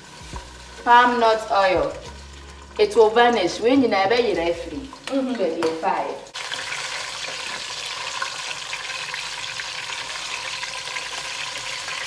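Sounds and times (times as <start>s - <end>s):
fish sizzling in hot oil: 0.0s - 5.4s, 6.2s - 12.0s.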